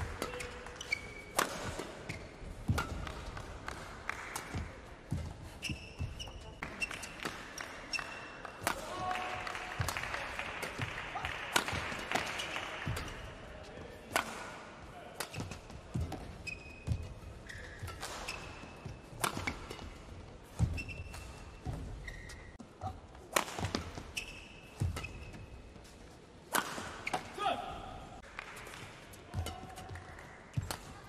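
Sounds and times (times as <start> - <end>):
rackets striking shuttlecock: 0.0 - 4.7, 5.7 - 9.2, 10.6 - 13.3, 14.1 - 14.6, 15.2 - 21.4, 23.3 - 25.4, 26.5 - 27.4
shoes squeaking on court: 0.2 - 3.4, 4.5 - 8.4, 15.3 - 23.0, 23.7 - 26.0.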